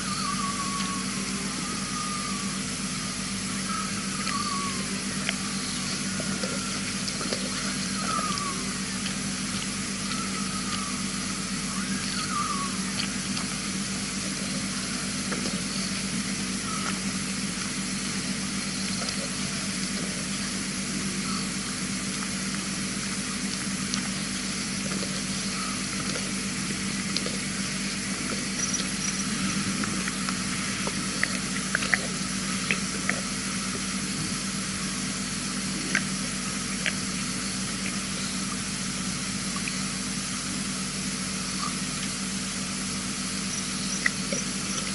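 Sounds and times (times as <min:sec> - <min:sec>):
faint chirps: 0:00.0 - 0:22.0, 0:23.2 - 0:44.9
low electrical hum: 0:00.0 - 0:44.9.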